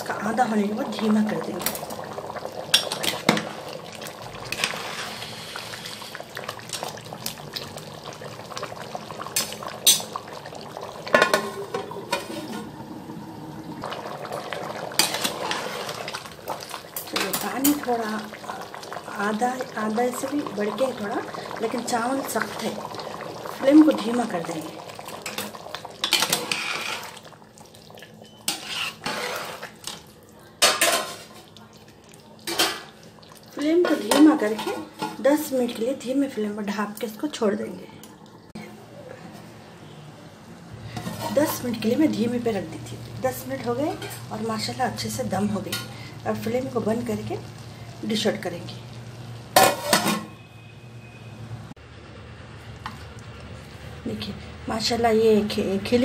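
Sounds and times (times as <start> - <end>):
pot boiling and bubbling: 0.0 - 56.0
metal ladle scraping pot: 4.4 - 6.2, 11.0 - 12.8, 13.9 - 17.9, 25.2 - 27.3, 28.2 - 30.0, 40.9 - 41.8, 49.6 - 50.4.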